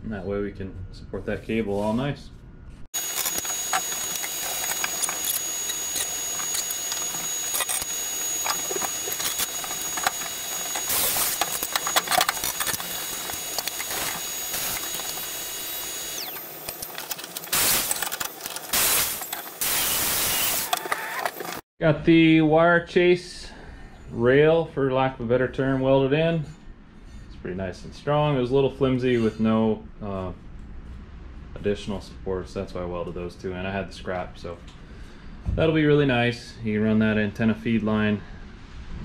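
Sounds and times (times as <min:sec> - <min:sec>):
angle grinder whining on steel: 0:03.0 - 0:21.6
harsh grinding bursts: 0:03.0 - 0:21.6.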